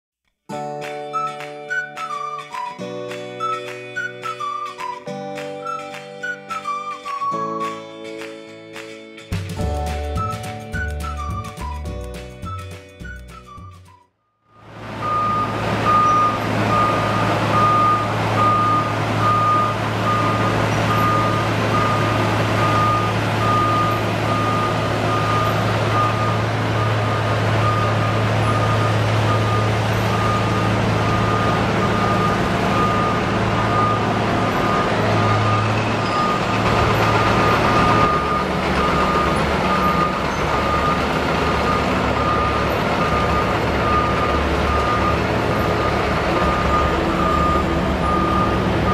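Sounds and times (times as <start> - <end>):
diesel engine drone: 14.5 - 48.9
machine milling asphalt: 14.6 - 48.9
backup alarm beeping: 15.0 - 48.9.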